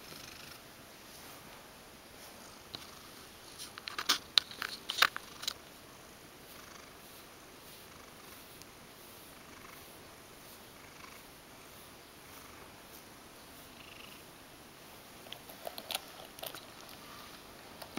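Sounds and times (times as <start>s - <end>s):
cat purring: 0.0s - 0.6s, 6.4s - 14.3s.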